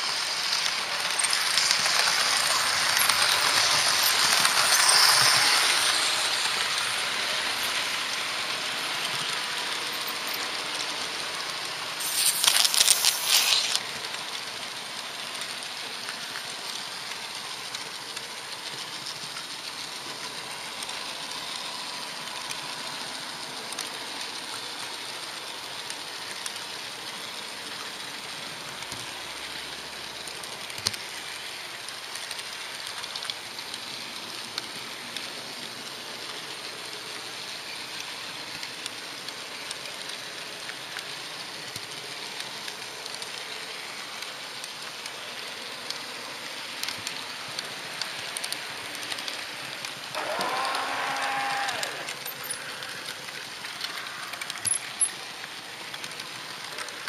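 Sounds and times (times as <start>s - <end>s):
model train rolling on track: 0.0s - 57.0s
wheel clicks: 0.6s - 7.8s, 46.8s - 57.0s.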